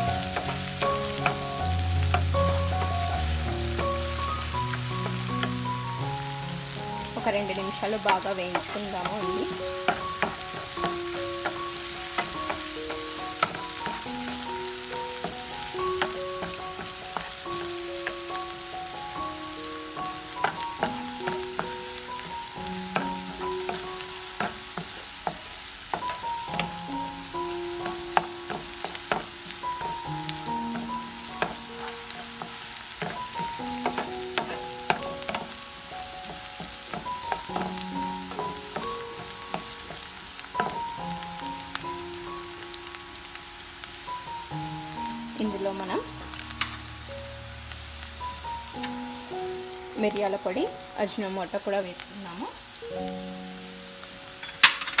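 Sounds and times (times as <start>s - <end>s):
wooden spatula scraping and tapping: 0.0s - 5.8s, 7.1s - 18.4s, 20.0s - 41.7s
slow melody of held notes: 0.0s - 54.7s
onions sizzling in hot oil: 0.0s - 55.0s.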